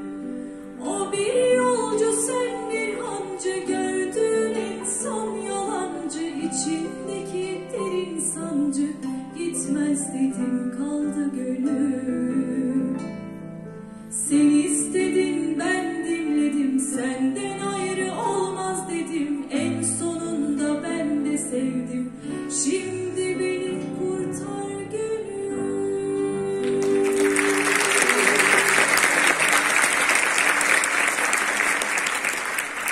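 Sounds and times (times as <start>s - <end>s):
acoustic guitar: 0.0s - 29.6s
woman singing: 0.8s - 13.2s, 14.1s - 28.9s
audience applauding: 26.6s - 32.9s.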